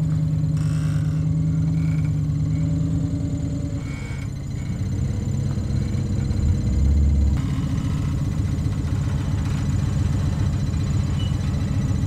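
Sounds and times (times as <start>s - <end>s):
off-road vehicle engine running: 0.0s - 12.0s.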